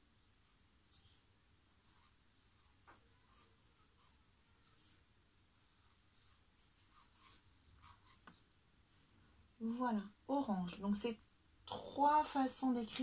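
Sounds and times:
marker scratching on paper: 0:00.4 - 0:08.4.

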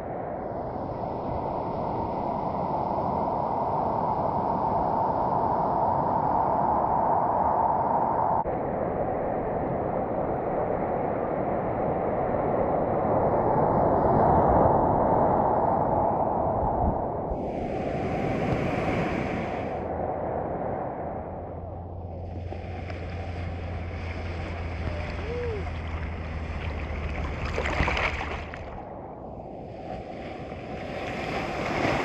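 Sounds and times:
wind on microphone: 0:00.0 - 0:32.0
ocean water rushing: 0:17.3 - 0:32.0.

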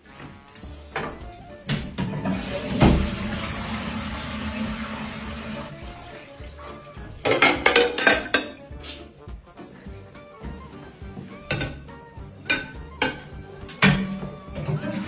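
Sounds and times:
toilet flushing: 0:02.0 - 0:06.3, 0:13.8 - 0:15.0
clinks and knocks of toilet plate: 0:07.3 - 0:08.6, 0:11.5 - 0:14.7.

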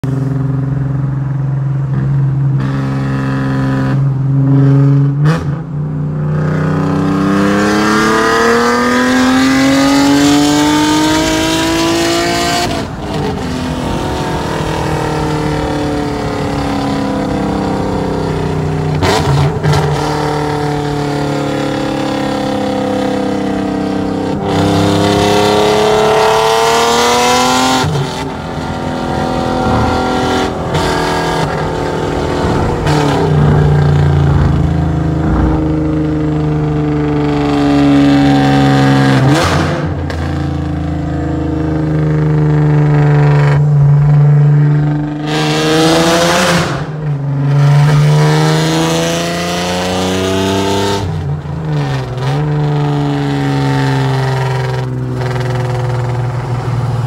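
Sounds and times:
car exhaust during hard acceleration: 0:27.0 - 0:40.8.

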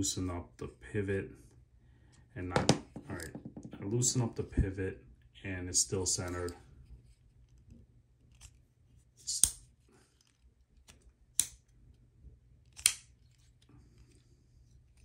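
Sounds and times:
folding knife clicking: 0:12.7 - 0:13.1.

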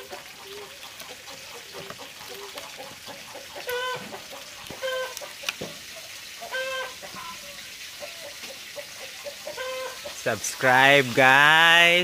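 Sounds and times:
chickens clucking: 0:00.0 - 0:10.6.

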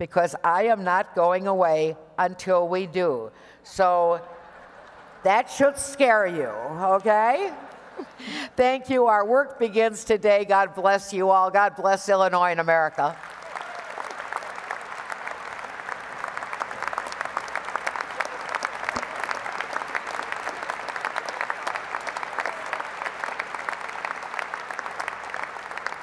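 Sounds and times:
crowd applauding: 0:04.4 - 0:05.3, 0:07.3 - 0:08.4, 0:13.2 - 0:26.0.

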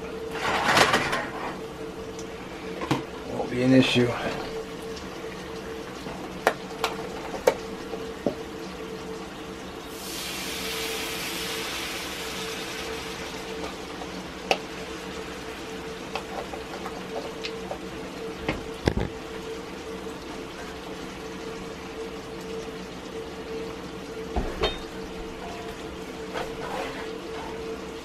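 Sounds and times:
liquid hissing in hot skillet: 0:09.9 - 0:13.6
wooden spatula scraping skillet: 0:26.3 - 0:27.7.

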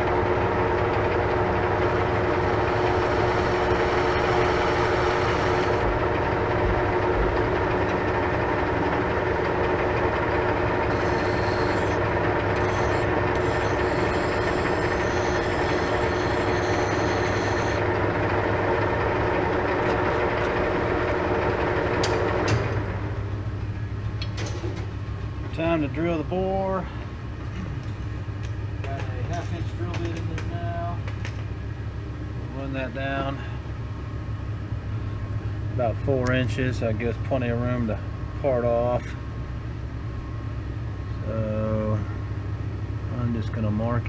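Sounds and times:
metal lathe humming: 0:00.0 - 0:22.3.

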